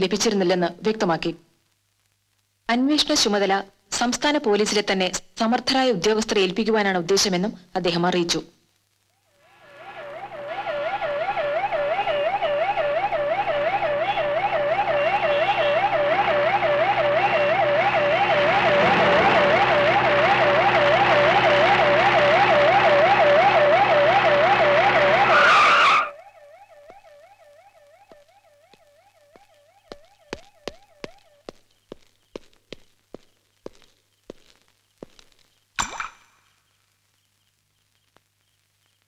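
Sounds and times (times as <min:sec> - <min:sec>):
police siren wailing: 0:09.3 - 0:31.4
vehicle engine: 0:17.1 - 0:25.4.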